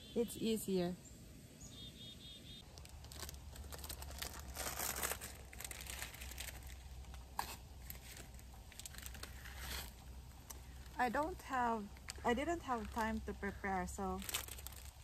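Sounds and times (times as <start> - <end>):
plastic packet crinkling: 2.6 - 11.3, 11.9 - 15.0.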